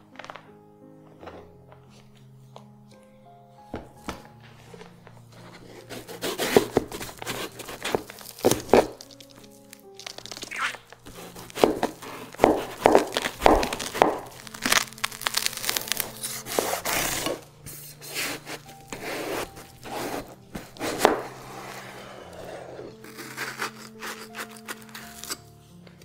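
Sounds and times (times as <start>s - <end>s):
knife cutting watermelon: 5.4s - 25.5s.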